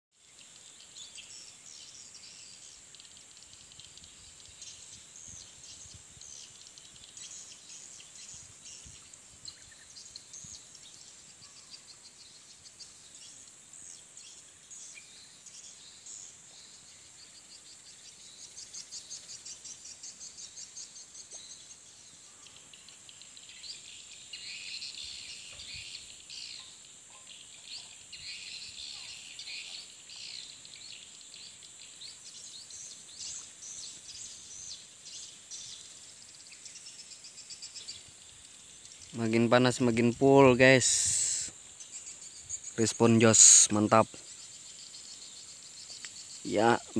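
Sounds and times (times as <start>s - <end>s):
high insect hiss: 0.1s - 46.9s
swiftlets chirping and twittering: 22.6s - 46.9s.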